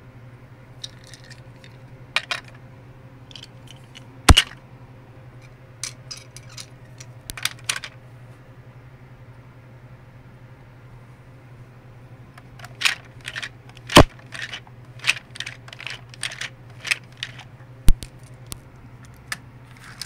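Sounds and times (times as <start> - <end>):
small hard objects clicking together: 0.8 - 2.5, 3.3 - 4.6, 5.8 - 7.9, 12.4 - 20.0
low hum: 0.8 - 8.0.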